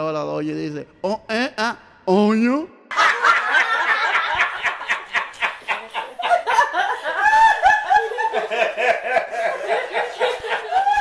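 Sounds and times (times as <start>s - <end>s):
person laughing: 4.4s - 11.0s.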